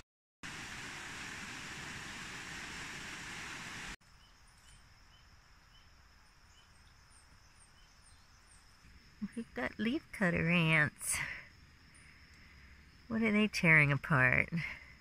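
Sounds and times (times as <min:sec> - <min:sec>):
water rushing over rocks: 0:00.4 - 0:04.0.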